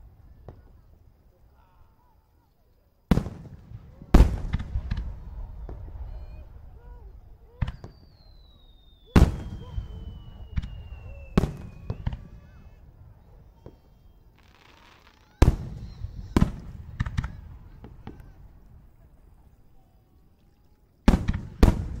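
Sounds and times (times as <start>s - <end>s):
fireworks small pops: 0.3s - 1.0s, 3.1s - 6.0s, 7.6s - 12.3s, 13.5s - 18.4s, 21.0s - 22.0s
fireworks loud bangs: 3.1s - 19.1s, 21.0s - 22.0s
fireworks hissing: 3.1s - 19.4s.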